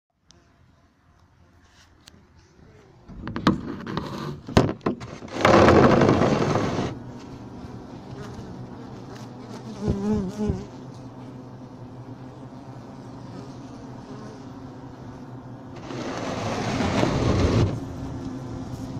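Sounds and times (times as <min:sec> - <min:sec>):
honeybees humming in hive: 0:02.5 - 0:18.9
loud rushing scrape: 0:03.4 - 0:07.0, 0:15.8 - 0:17.8
bee buzzing close past: 0:04.0 - 0:18.9.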